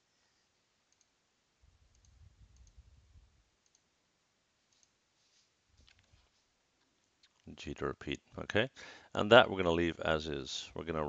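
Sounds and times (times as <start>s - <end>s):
computer mouse clicks: 0.9s - 1.2s, 1.9s - 2.8s, 3.6s - 3.9s, 4.7s - 5.0s.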